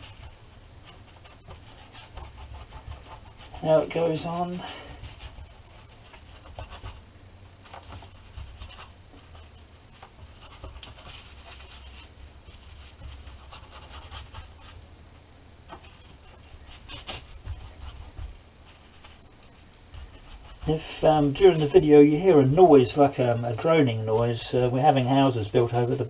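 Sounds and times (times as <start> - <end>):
paintbrush scratching on board: 0.0 - 7.0, 7.7 - 9.6, 10.2 - 14.8, 15.7 - 22.6
low steady rumble: 0.0 - 26.0.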